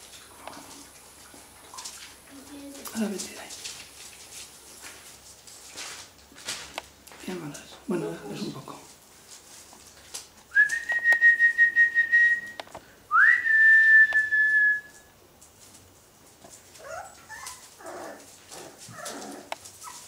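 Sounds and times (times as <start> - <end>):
puppies whimpering: 16.8 - 20.0.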